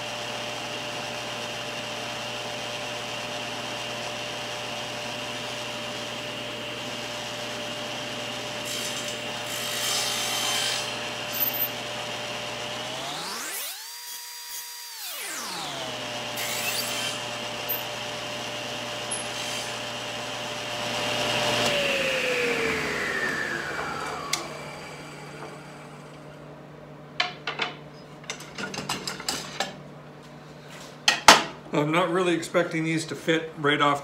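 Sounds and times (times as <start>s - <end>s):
table saw whine: 0.0s - 26.5s.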